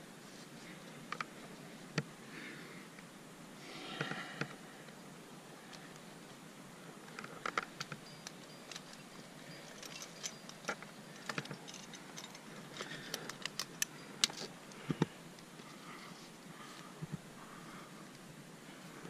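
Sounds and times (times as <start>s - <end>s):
climbing hardware clinking: 7.1s - 15.1s.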